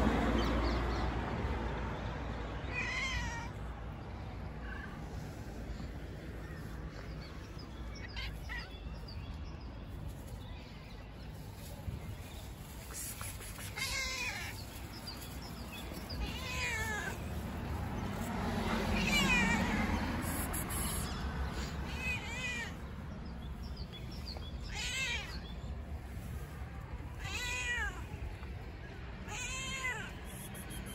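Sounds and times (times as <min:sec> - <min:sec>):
cat meowing: 0:02.6 - 0:03.6, 0:16.2 - 0:17.2, 0:18.9 - 0:20.4, 0:21.9 - 0:22.8, 0:24.7 - 0:25.4, 0:27.2 - 0:28.1.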